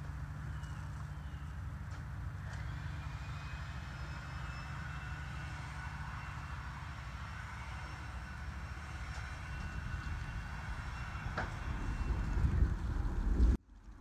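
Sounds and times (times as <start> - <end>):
low engine drone: 0.0 - 14.0.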